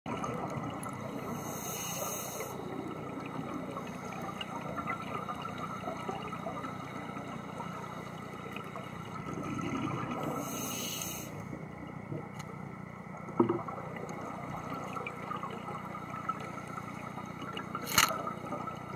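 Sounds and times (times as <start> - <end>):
underwater rushing noise: 0.1 - 18.9
diver regulator breath hissing: 1.2 - 2.8, 10.3 - 11.5.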